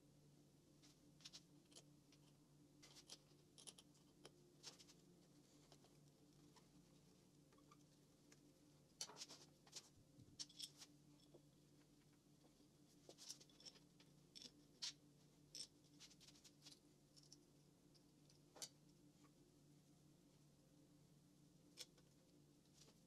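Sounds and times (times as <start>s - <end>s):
low steady hum: 0.0s - 23.0s
small metal parts clicking: 1.7s - 4.4s.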